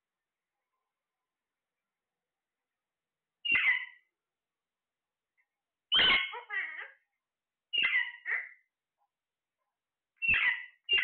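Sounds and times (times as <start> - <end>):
parakeets harsh calls: 3.4 - 4.1, 5.9 - 7.0, 7.7 - 8.7, 10.2 - 11.0.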